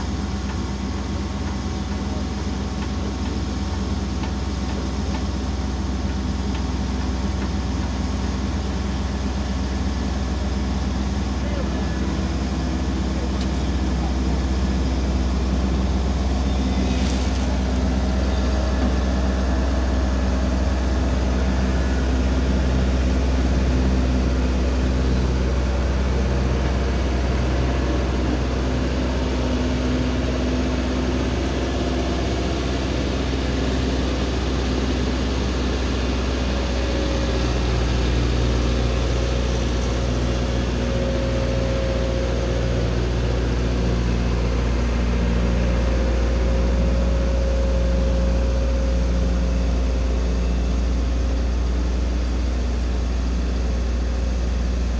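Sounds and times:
excavator diesel engine humming: 0:00.0 - 0:54.9.

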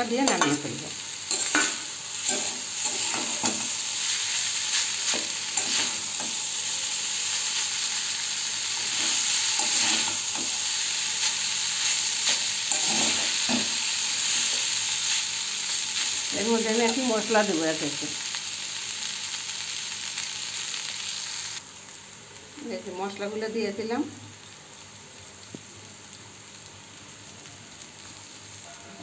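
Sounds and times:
noodles sizzling in oil: 0:00.0 - 0:29.0
metal spatula scraping pan: 0:08.8 - 0:10.5, 0:12.2 - 0:14.6.

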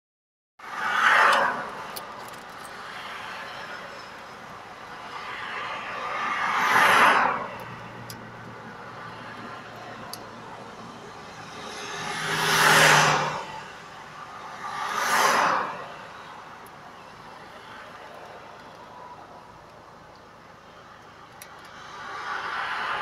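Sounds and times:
vehicles swishing past: 0:00.6 - 0:19.6, 0:20.6 - 0:23.0
low traffic hum: 0:00.6 - 0:23.0.

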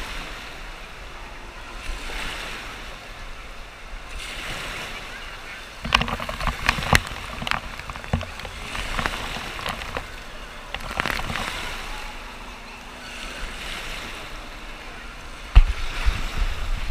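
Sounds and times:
water splashing over camera: 0:05.6 - 0:12.3.

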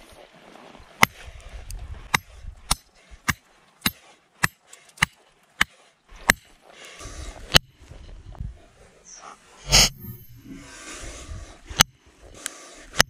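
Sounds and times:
metallic ring: 0:09.7 - 0:10.7.

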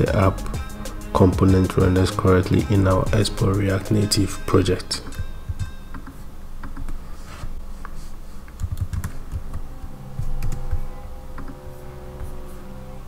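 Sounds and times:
steady low hum: 0:00.0 - 0:13.0
computer keyboard typing: 0:08.5 - 0:09.6.

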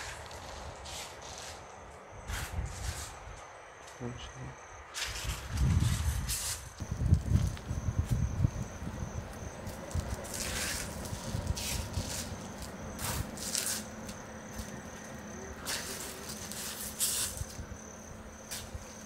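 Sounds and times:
cricket trilling: 0:00.0 - 0:19.0
shuffling footsteps on gritty floor: 0:05.0 - 0:17.6.

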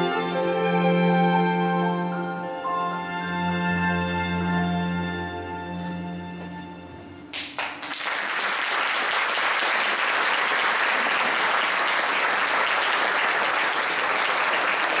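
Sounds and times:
audience applauding: 0:07.3 - 0:15.0.

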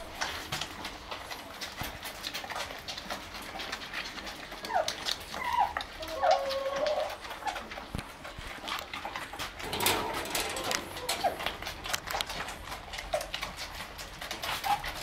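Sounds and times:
puppies whimpering and squeaking: 0:00.0 - 0:15.0
puppy whine: 0:02.4 - 0:07.9, 0:08.6 - 0:15.0
puppy squeals: 0:04.6 - 0:07.6.

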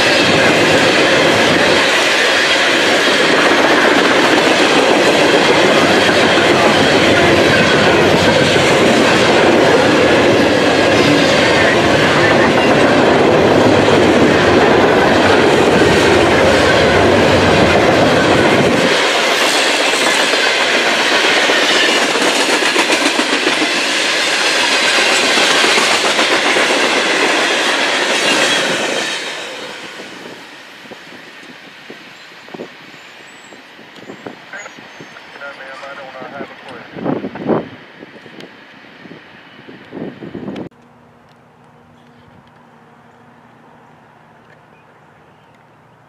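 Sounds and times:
steel wheels on rails: 0:00.0 - 0:35.9
freight train rolling past: 0:00.0 - 0:46.0.

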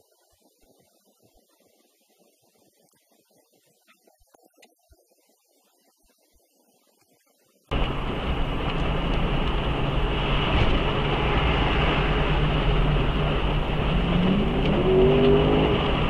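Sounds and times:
road vehicle engine and road noise: 0:07.7 - 0:16.0.

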